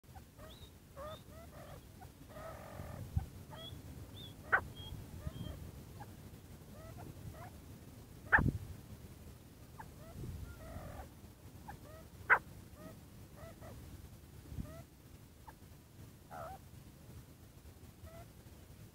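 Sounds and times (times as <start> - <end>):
francolin calling: 0.1 - 6.1, 9.8 - 11.1.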